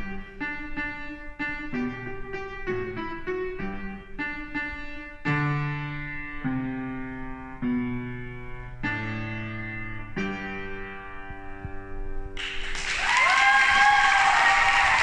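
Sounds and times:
piano chords: 0.0 - 13.0.

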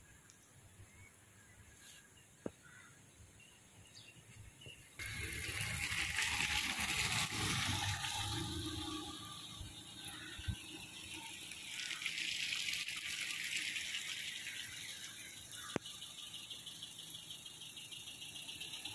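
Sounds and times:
van tyres swishing through floodwater: 5.0 - 10.1, 10.8 - 15.5.

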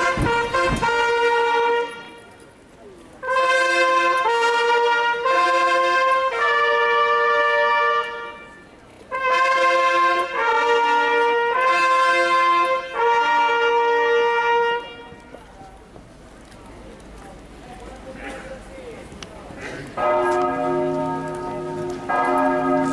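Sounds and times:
herald trumpets playing fanfare: 0.0 - 2.5, 3.2 - 15.6, 20.0 - 22.9.

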